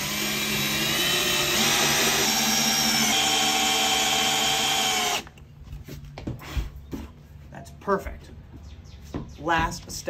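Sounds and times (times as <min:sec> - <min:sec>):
drill driving screw into wood: 0:00.0 - 0:05.4.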